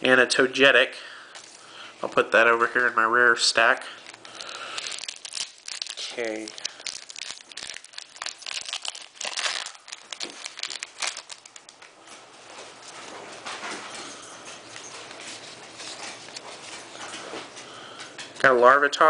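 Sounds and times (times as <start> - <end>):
cards rustling: 4.0 - 11.9, 15.1 - 17.5
foil pack crinkling and tearing: 4.0 - 11.9.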